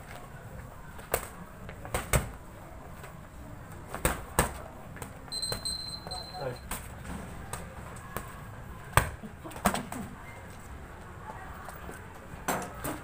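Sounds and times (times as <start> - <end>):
boxing gloves smacking: 1.0 - 2.4, 3.9 - 5.6.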